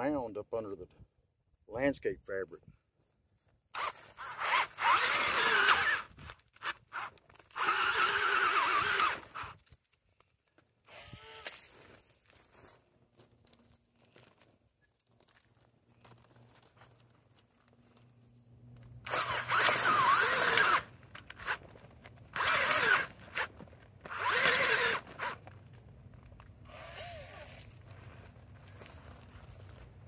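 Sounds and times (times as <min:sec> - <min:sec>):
cordless drill motor boring soil: 0:03.8 - 0:09.8, 0:10.8 - 0:11.7, 0:18.8 - 0:25.9, 0:26.6 - 0:29.9.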